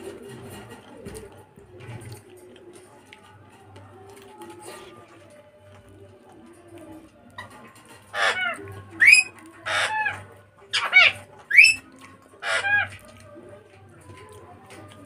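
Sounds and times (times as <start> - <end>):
high-pitched animal calls: 8.1 - 13.0.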